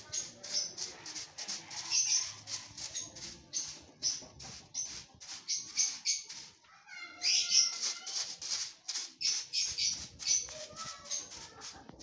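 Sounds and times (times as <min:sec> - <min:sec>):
broom sweeping concrete: 0:00.0 - 0:12.0.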